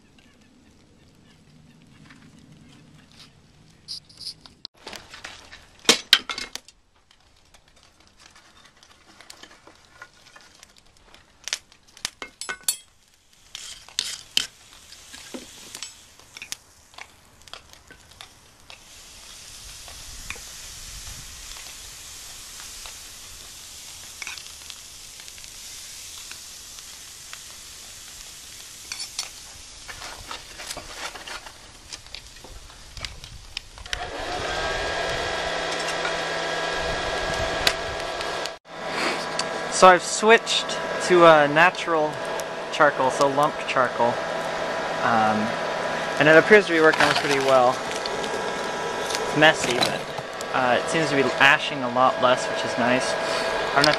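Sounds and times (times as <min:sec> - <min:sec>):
steady hiss: 0:09.4 - 0:53.9
metal tools clinking on steel: 0:12.2 - 0:13.0.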